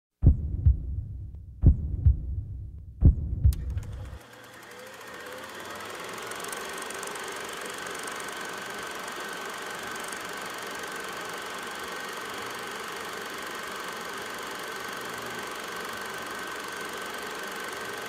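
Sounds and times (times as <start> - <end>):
deep heartbeat-like thumps: 0.2 - 3.9.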